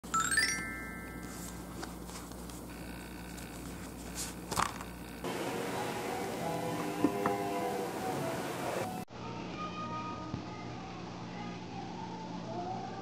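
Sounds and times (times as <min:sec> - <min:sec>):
chime ringing: 0:00.0 - 0:01.6
book pages rustling and flipping: 0:01.0 - 0:05.0
light background music: 0:05.3 - 0:09.1.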